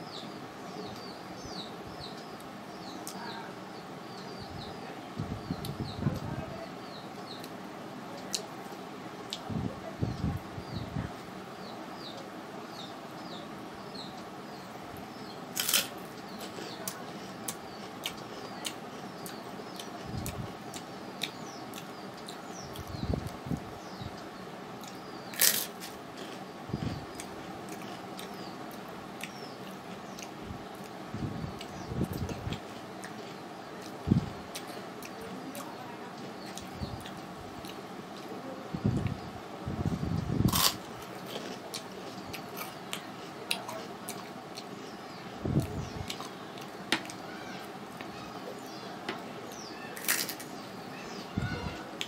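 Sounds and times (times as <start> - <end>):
steady background hum: 0.0 - 52.0
small bird chirping: 9.3 - 37.8
person chewing: 15.5 - 22.9, 24.8 - 31.0, 40.5 - 44.7.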